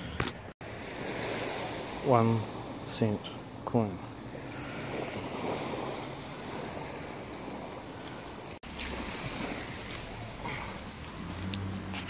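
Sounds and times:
surf washing on beach: 0:00.0 - 0:12.0.

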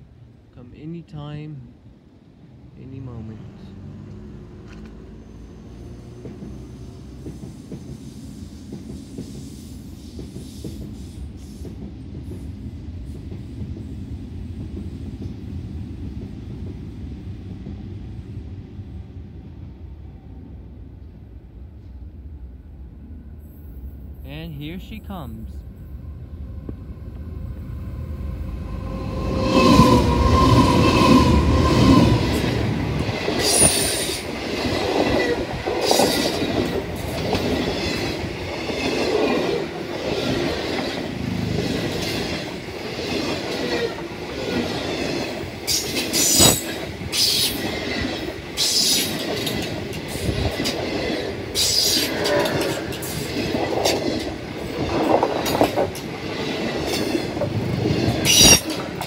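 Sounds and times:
diesel locomotive passing: 0:01.8 - 0:59.0
train wheels on rails: 0:04.0 - 0:18.4, 0:26.5 - 0:59.0
high-pitched wheel squeals: 0:58.2 - 0:58.7.

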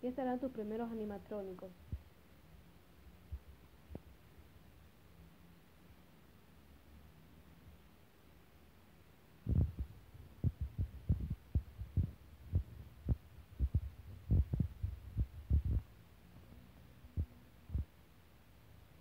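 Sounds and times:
dull low thumps: 0:09.5 - 0:16.0, 0:17.1 - 0:17.9.

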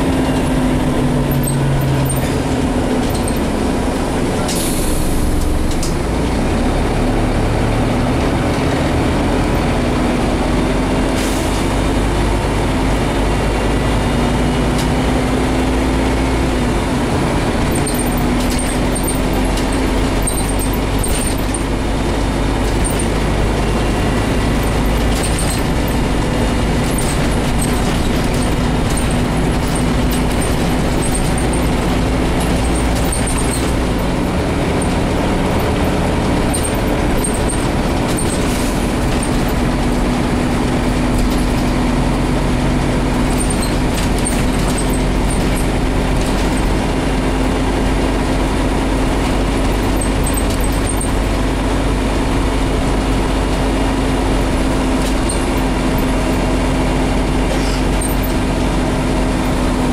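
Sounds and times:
bus engine humming: 0:00.0 - 0:59.9
drivetrain and road noise: 0:00.0 - 0:59.9.

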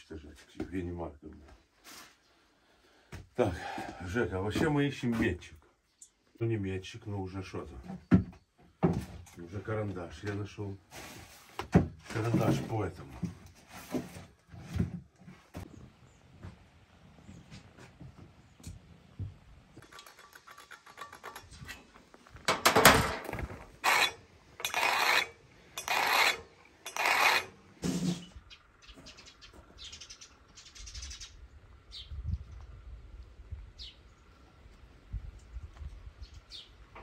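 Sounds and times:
steel tool scraping steel: 0:23.2 - 0:28.3.

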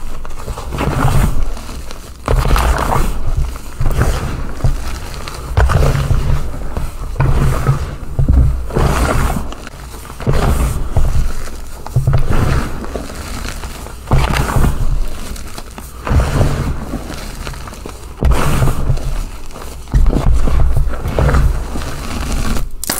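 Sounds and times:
chalk blocks crumbling: 0:00.4 - 0:22.9.

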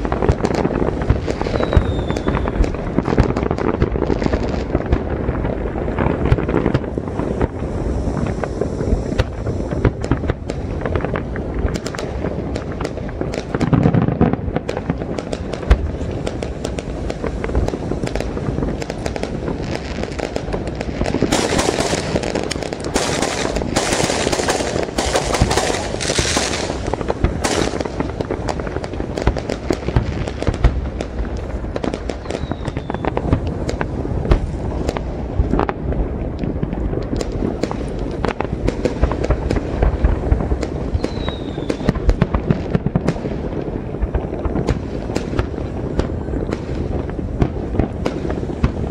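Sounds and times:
fireworks booming and crackling: 0:00.0 - 0:48.9.

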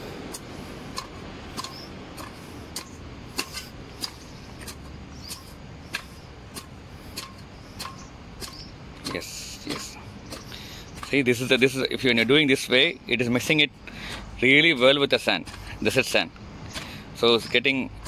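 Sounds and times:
spade chopping and scraping soil: 0:00.0 - 0:18.0.

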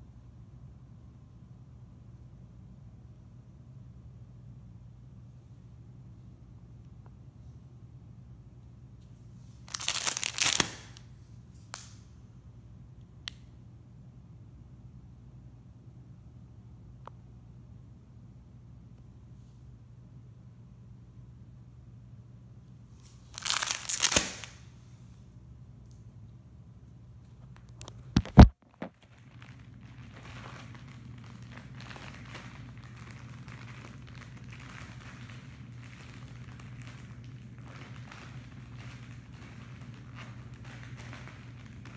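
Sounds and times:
plastic bag crinkling: 0:09.6 - 0:11.0, 0:23.1 - 0:24.6, 0:28.2 - 0:41.9.

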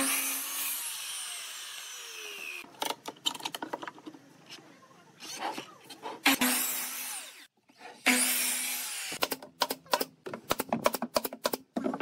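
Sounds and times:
miter saw cutting wood: 0:00.0 - 0:02.6
nail gun clacks: 0:09.2 - 0:11.6.

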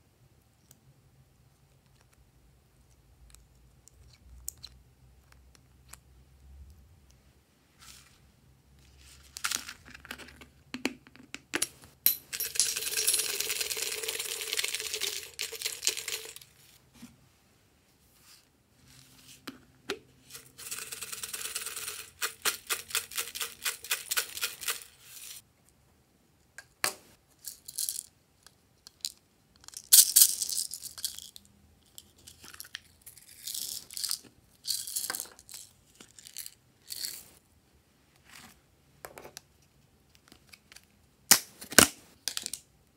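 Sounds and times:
glitter and beads rattling: 0:12.3 - 0:16.5.

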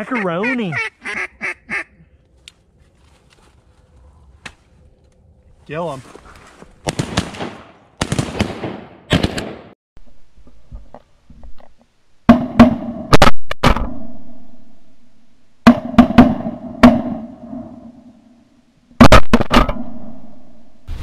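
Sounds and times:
shotgun blasts: 0:06.8 - 0:09.7.

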